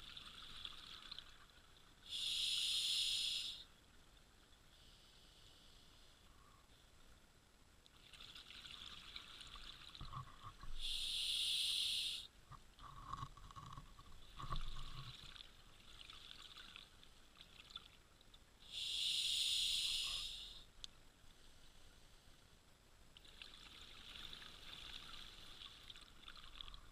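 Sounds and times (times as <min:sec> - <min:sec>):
regulator breathing hiss: 0:02.1 - 0:03.7, 0:10.8 - 0:12.3, 0:18.7 - 0:20.7
underwater bubbling: 0:08.0 - 0:20.6.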